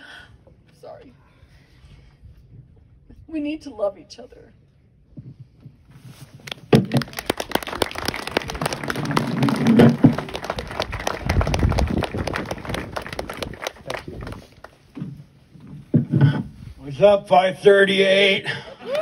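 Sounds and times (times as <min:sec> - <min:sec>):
audience applauding: 0:06.7 - 0:14.8.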